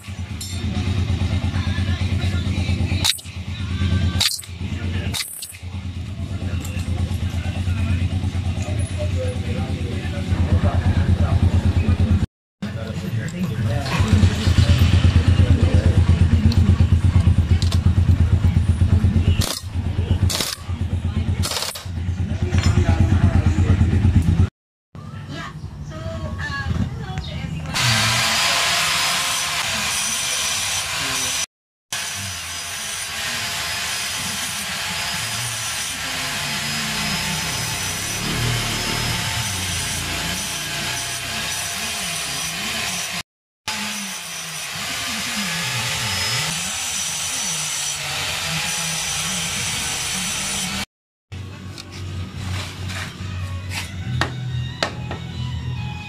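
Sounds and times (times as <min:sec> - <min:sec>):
pneumatic impact wrench rattling: 0:03.0 - 0:03.3, 0:04.2 - 0:05.7, 0:19.4 - 0:19.7, 0:20.3 - 0:20.7, 0:21.4 - 0:21.9.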